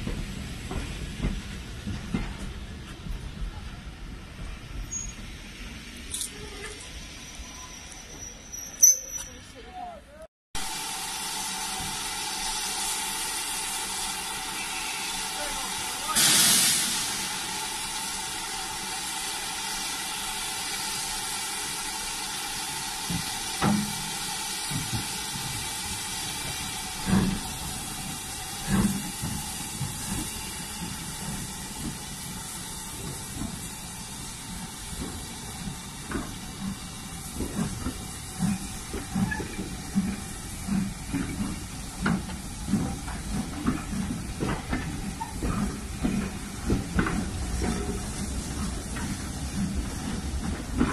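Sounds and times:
steam hissing: 10.6s - 50.9s
locomotive exhaust chuffs: 10.9s - 50.9s.

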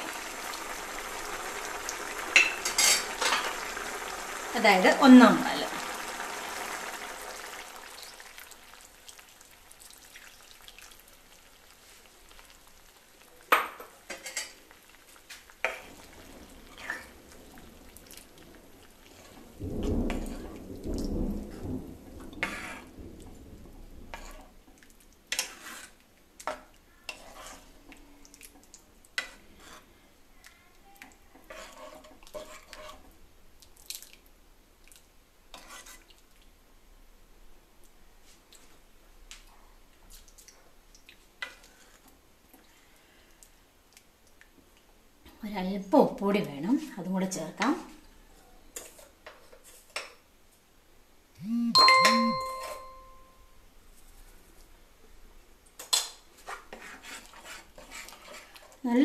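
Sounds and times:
ladle stirring stew in a pan: 5.6s - 21.6s, 22.2s - 23.4s, 24.1s - 36.6s, 40.0s - 44.8s, 47.4s - 50.2s, 55.6s - 59.0s
thick liquid pouring: 5.8s - 12.6s.

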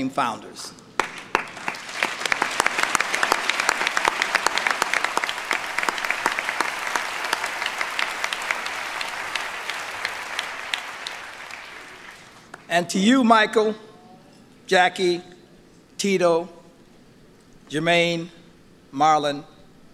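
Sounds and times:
audience applauding: 1.0s - 12.7s.

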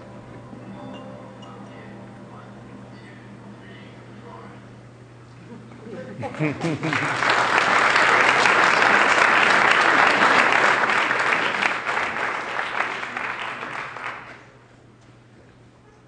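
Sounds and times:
audience applauding: 6.5s - 14.4s.

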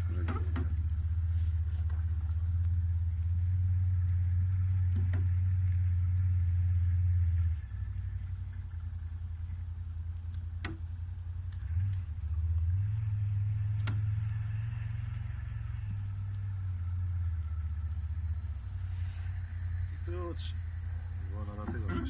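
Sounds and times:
boat motor humming: 0.0s - 22.0s.

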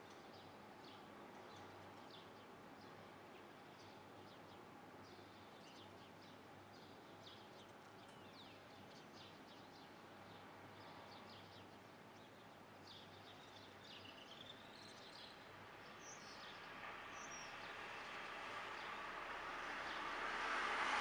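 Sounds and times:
rushing noise: 18.4s - 21.0s.

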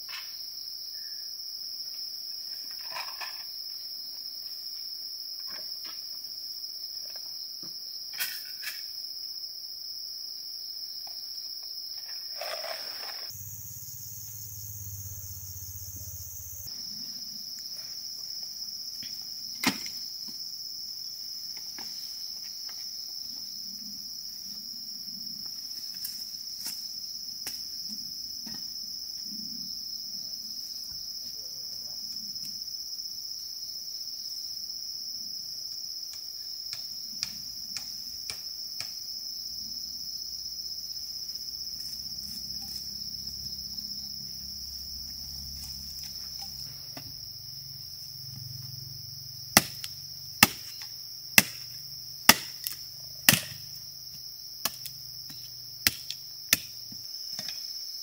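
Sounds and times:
high-pitched insect drone: 12.1s - 18.3s, 39.4s - 52.2s
sharp chopping blows: 49.6s - 50.8s, 51.4s - 51.7s, 52.3s - 53.7s.

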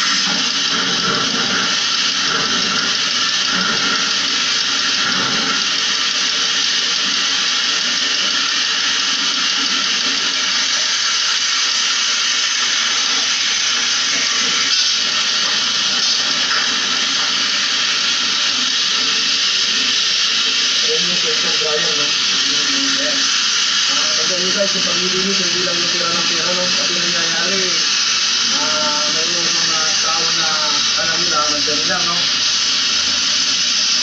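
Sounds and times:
water jet hissing: 0.0s - 34.0s.

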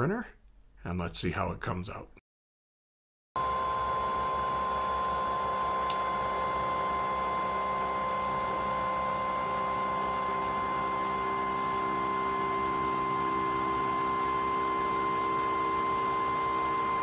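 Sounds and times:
printer humming with whining tones: 3.4s - 17.0s.

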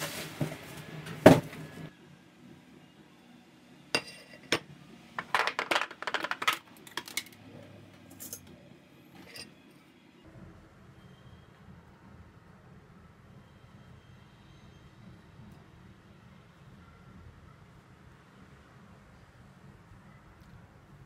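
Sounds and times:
glassware and dishes clinking: 4.0s - 4.6s.

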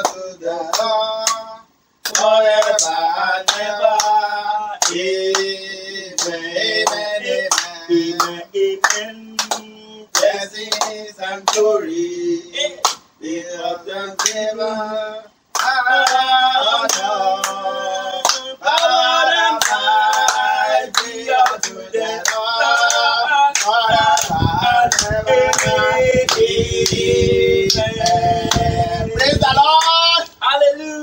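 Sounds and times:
steady hand clapping: 0.0s - 4.2s, 4.8s - 11.8s, 12.8s - 13.1s, 14.2s - 14.5s, 15.5s - 17.6s, 18.2s - 28.8s
voices singing a praise chorus: 0.0s - 31.0s.

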